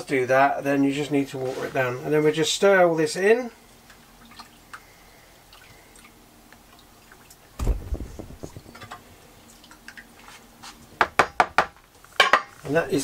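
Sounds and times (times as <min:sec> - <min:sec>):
liquid sloshing and splashing: 0:06.7 - 0:10.2.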